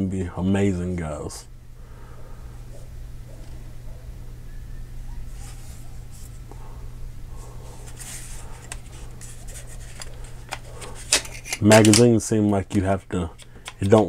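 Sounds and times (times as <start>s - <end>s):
steady low hum: 0.0s - 14.0s
hands rubbing plastic part: 7.6s - 14.0s.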